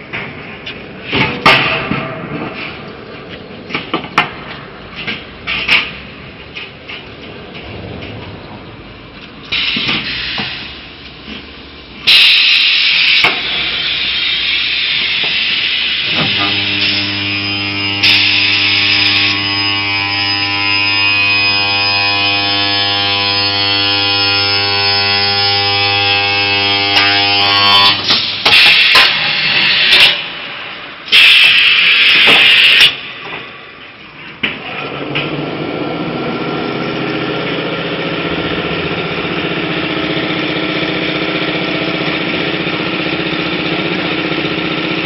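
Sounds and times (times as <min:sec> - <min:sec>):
welding machine buzzing: 0:15.8 - 0:30.2
loud hissing bursts: 0:27.9 - 0:33.0.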